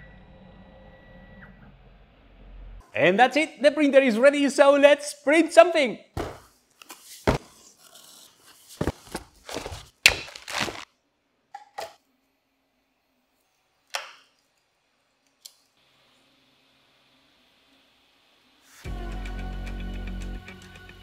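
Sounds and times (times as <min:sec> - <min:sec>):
cardboard box being opened: 0:07.3 - 0:10.8.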